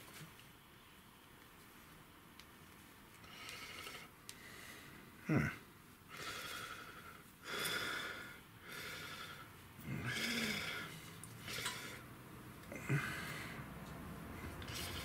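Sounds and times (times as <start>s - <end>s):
person breathing in short breaths: 12.7s - 13.6s.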